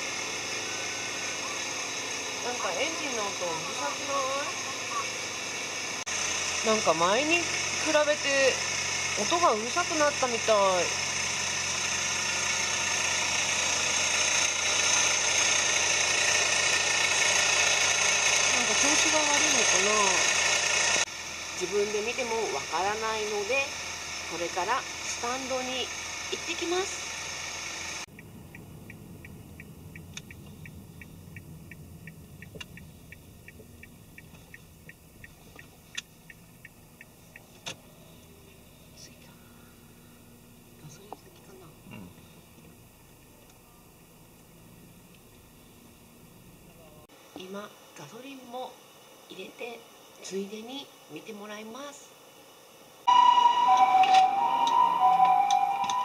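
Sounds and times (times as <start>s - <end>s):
car engine idling with whine: 0.0s - 47.1s
sharp clicks: 28.1s - 37.8s
turn signal ticking: 28.1s - 38.6s.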